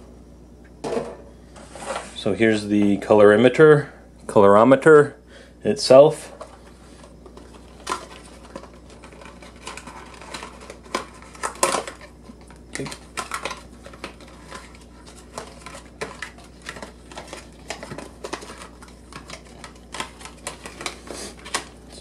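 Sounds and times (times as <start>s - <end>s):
packaging being handled: 6.4s - 22.0s.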